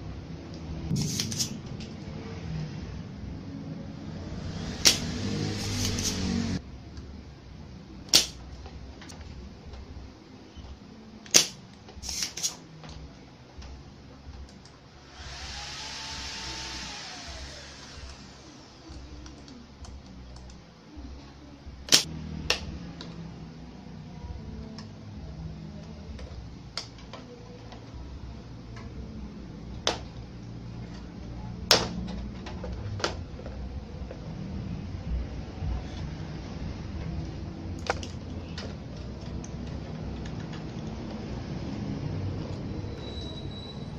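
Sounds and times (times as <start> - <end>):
low steady hum: 0.0 - 43.0
desoldering pump snap: 8.1 - 8.4, 11.3 - 12.6.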